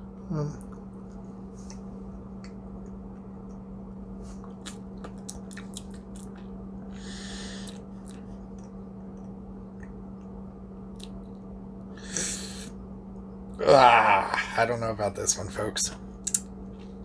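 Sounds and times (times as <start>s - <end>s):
steady low hum: 0.0s - 17.0s
person chewing: 4.3s - 6.5s
short breath: 6.9s - 7.8s
wet mouth clicks: 16.2s - 16.5s.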